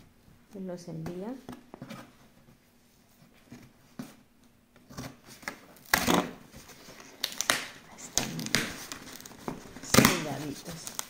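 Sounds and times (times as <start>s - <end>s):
packing tape tearing: 4.9s - 11.0s.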